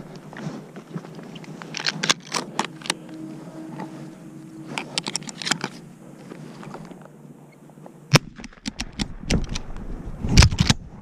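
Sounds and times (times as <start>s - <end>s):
clothing rubbing on microphone: 0.0s - 7.0s.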